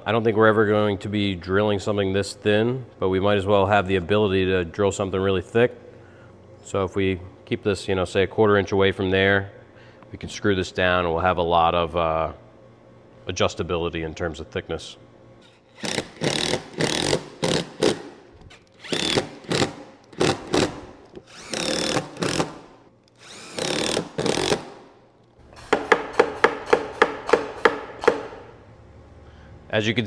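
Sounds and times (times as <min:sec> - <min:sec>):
power driver driving screws: 0:15.5 - 0:24.8.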